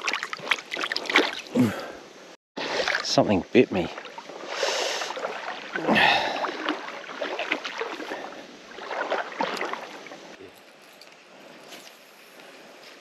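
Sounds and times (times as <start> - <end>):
creek water splashing: 0.0 - 2.0, 2.6 - 10.5.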